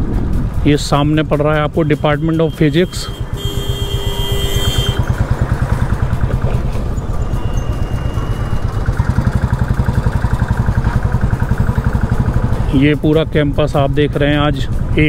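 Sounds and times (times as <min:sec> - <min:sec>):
steady high tone: 0:01.8 - 0:10.1
motorcycle engine thumping: 0:03.1 - 0:07.3, 0:08.7 - 0:13.0.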